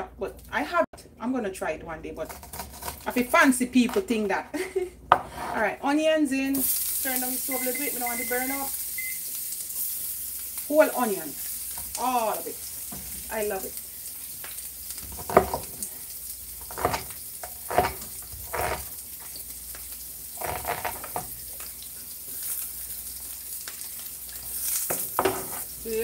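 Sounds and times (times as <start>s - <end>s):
onion sizzling in frying pan: 6.4s - 26.0s.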